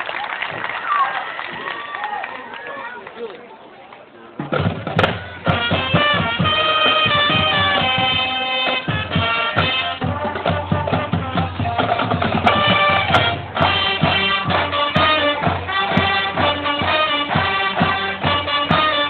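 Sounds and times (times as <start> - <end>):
marching drumline beat: 4.4 - 19.0
brass holding chords: 5.4 - 19.0.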